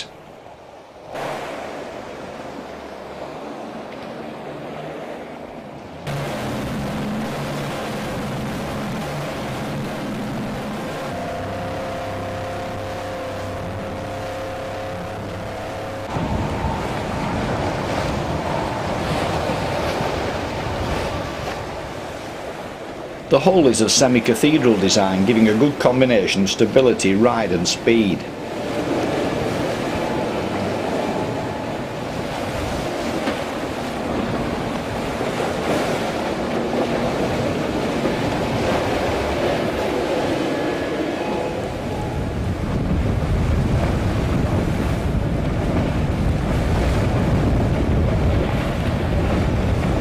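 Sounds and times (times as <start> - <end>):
rush of water and spray: 0.0 - 5.4, 6.0 - 50.0
waves washing: 0.0 - 50.0
wind buffeting microphone: 5.4 - 23.3, 28.3 - 50.0
outboard motor running: 6.0 - 22.6, 28.3 - 50.0.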